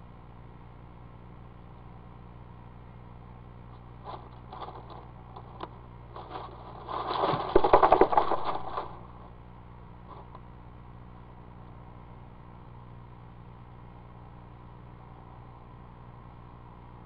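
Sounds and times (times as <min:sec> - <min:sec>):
dry leaves crackling and scraping: 0:04.0 - 0:09.3.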